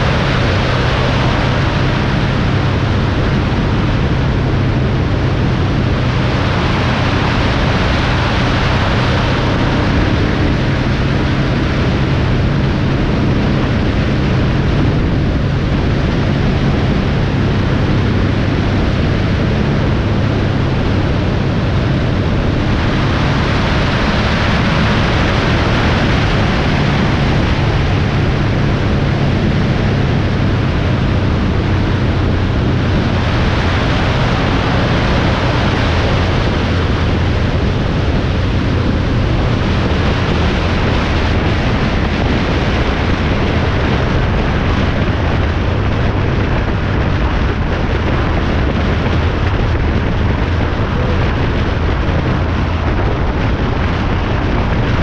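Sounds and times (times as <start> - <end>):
low engine hum: 0.0 - 55.0
wind and road noise: 0.0 - 55.0.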